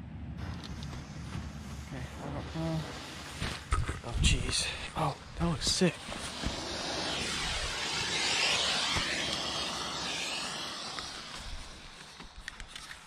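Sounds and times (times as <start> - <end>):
smoke bomb hissing: 0.4 - 13.0.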